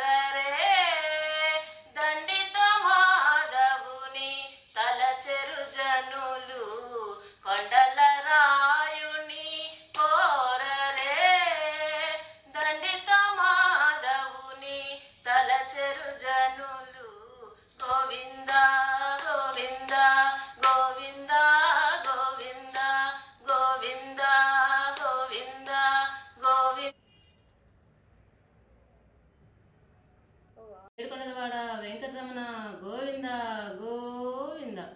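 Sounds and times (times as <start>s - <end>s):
woman singing: 0.0s - 26.9s, 31.0s - 34.9s.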